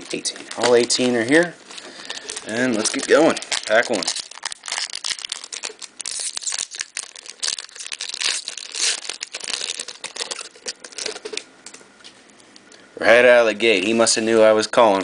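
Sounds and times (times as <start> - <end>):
foil wrapper tearing and crinkling: 0.0 - 11.5.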